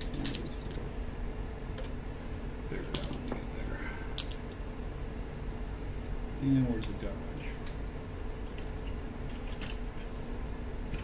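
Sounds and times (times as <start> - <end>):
steel rods clinking: 0.0 - 0.8, 2.8 - 4.6.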